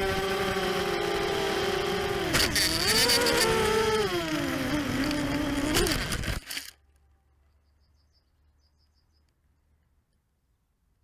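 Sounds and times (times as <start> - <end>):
quadcopter motors whining: 0.0 - 6.8.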